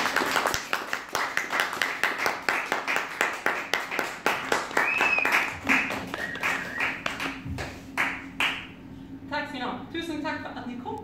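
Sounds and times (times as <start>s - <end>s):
small audience applauding: 0.0s - 8.7s.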